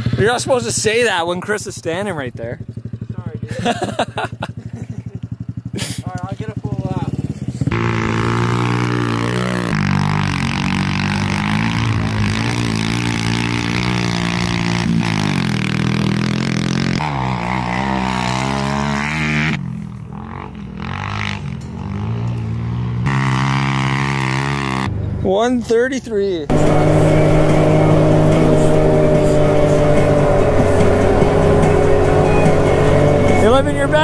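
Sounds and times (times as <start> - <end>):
off-road vehicle engine revving: 0.0 - 25.2, 26.4 - 34.0.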